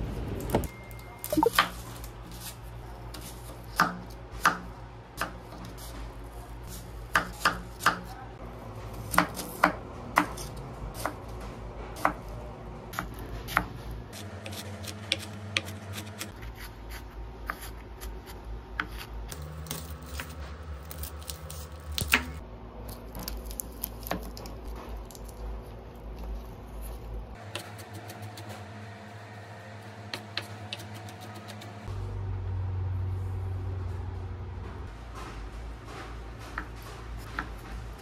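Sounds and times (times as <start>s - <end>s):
knife chopping on wooden board: 3.2s - 5.6s, 7.1s - 8.1s.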